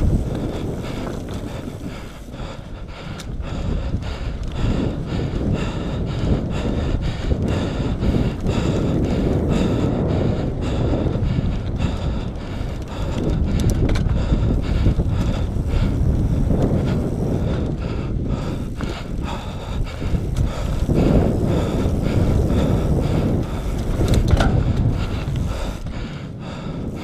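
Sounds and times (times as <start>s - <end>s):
bike clicks and rattles: 0.0s - 27.0s
wind buffeting microphone: 0.0s - 27.0s.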